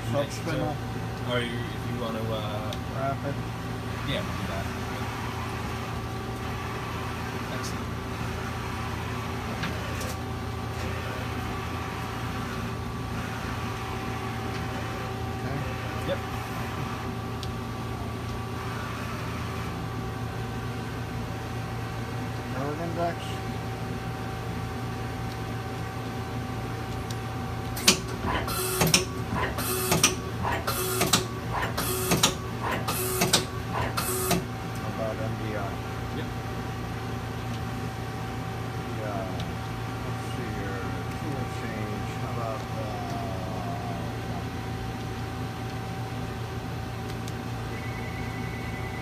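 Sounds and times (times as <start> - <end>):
machine hum with whine: 0.0 - 49.0
lathe turret clunk: 27.8 - 34.5.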